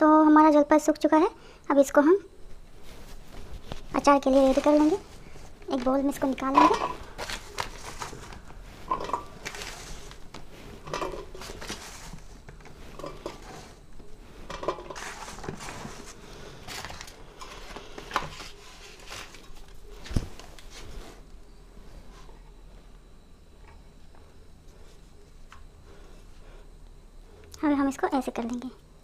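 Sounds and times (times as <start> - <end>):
olives clattering on steel plate: 8.9 - 9.3.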